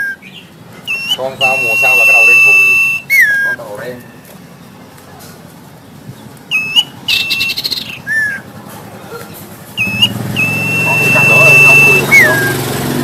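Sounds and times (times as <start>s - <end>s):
bird whistling: 0.0s - 4.2s, 6.5s - 8.5s, 9.8s - 12.7s.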